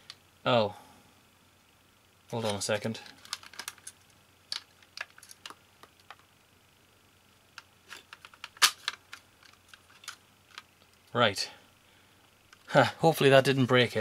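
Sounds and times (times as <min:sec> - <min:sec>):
plastic and metal parts clicking: 0:02.4 - 0:06.2.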